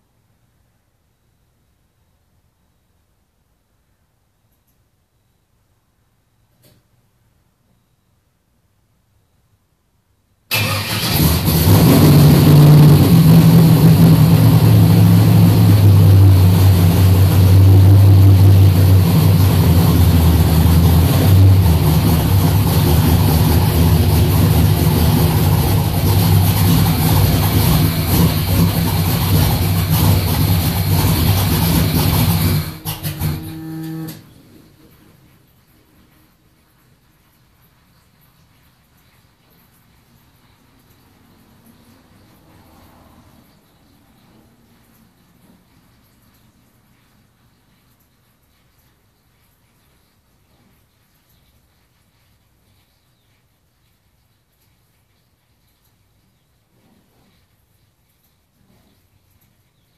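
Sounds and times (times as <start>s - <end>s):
engine sputtering to a stop: 10.5s - 34.2s
car engine running loudly: 11.1s - 33.4s.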